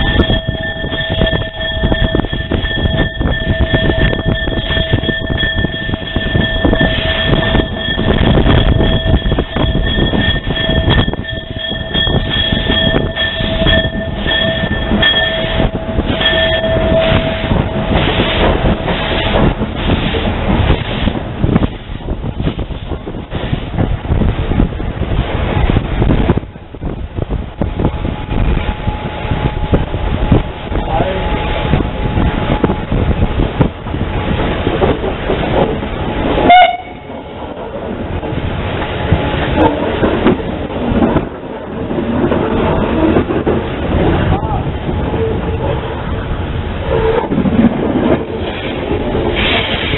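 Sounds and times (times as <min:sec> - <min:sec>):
high pulsing ringing tone: 0:00.0 - 0:19.4
wheels clattering: 0:00.0 - 0:26.4
train rumbling: 0:00.0 - 0:49.9
locomotive whistle toot: 0:36.4 - 0:37.1
rhythmic steam hissing: 0:48.3 - 0:49.9.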